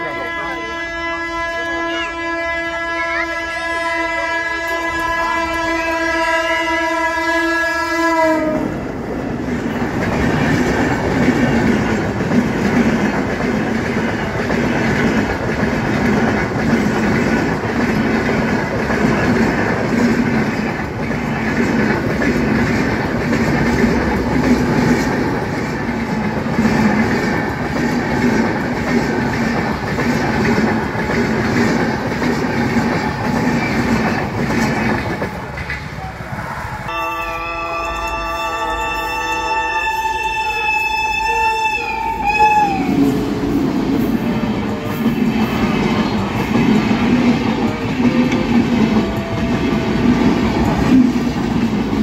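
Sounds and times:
train horn blast: 0.0s - 8.8s, 36.9s - 43.2s, 47.6s - 50.4s
train rumbling past: 0.0s - 52.0s
wheels clacking over rail joints: 8.4s - 36.2s, 43.4s - 52.0s.

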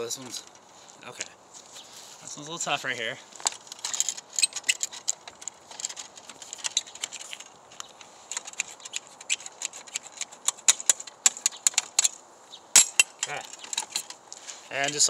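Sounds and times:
metal clicks and clinks: 3.4s - 14.2s.

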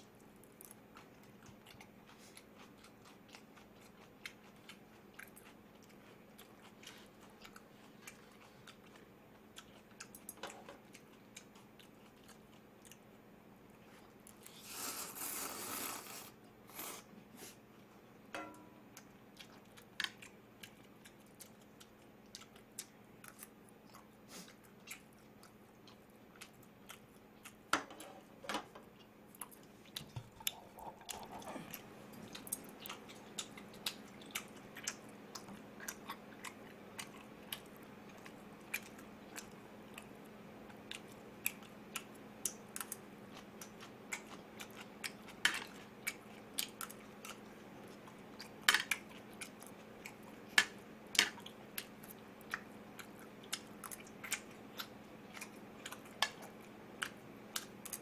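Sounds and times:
person chewing with wet smacks: 0.0s - 13.1s, 18.9s - 27.7s, 28.9s - 58.0s
person slurping noodles: 14.5s - 17.1s.

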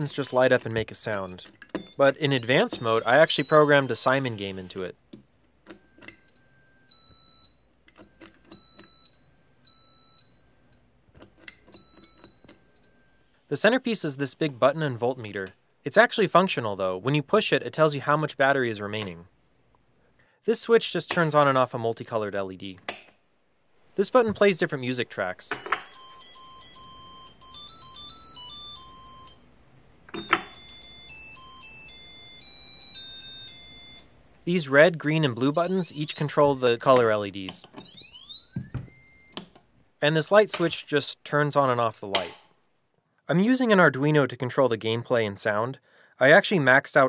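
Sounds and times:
electronic beeps: 0.0s - 4.8s, 35.4s - 37.1s, 37.8s - 39.4s.

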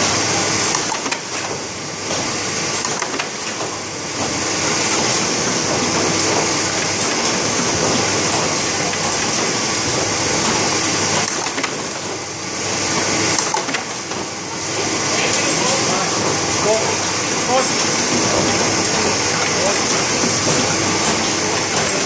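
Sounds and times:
machine clatter: 0.0s - 22.0s.

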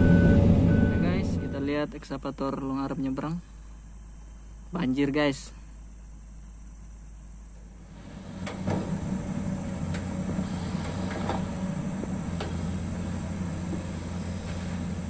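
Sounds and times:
excavator diesel engine running: 0.0s - 3.0s, 7.2s - 15.0s.

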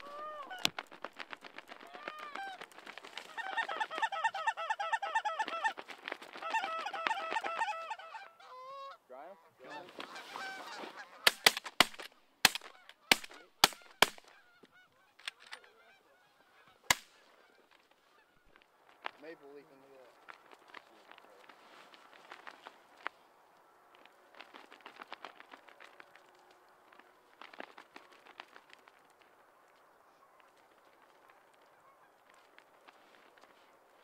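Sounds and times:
geese honking: 0.0s - 0.9s, 1.8s - 11.5s, 12.6s - 18.6s
shotgun shots: 11.2s - 14.3s, 16.9s - 17.2s.

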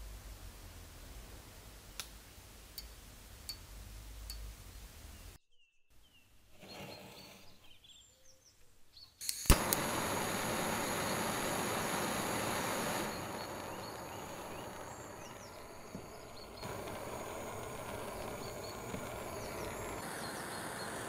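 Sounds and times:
gas torch hissing: 9.2s - 21.0s
gas torch ignition click: 9.2s - 21.0s.

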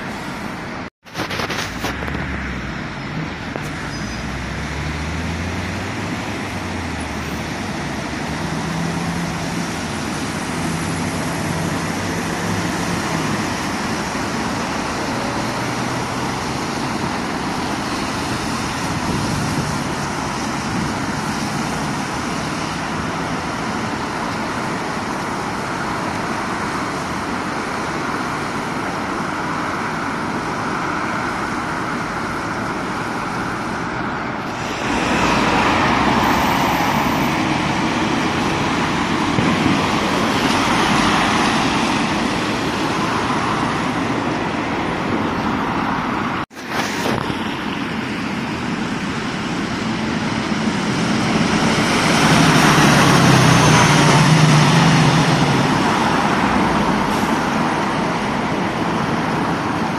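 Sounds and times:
bus engine humming: 0.0s - 59.9s
cars swishing past on wet tarmac: 0.0s - 59.9s
road traffic on wet roads: 0.0s - 59.9s.

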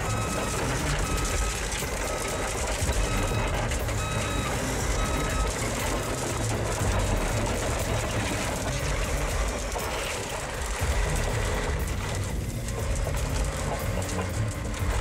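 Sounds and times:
bulldozer engine under load: 0.0s - 15.0s
steel tracks clanking: 0.0s - 15.0s.

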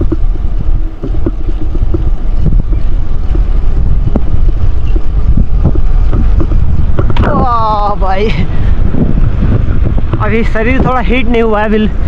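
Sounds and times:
bike tyre rumble on rough road: 0.0s - 12.0s
wind buffeting microphone: 0.0s - 12.0s.

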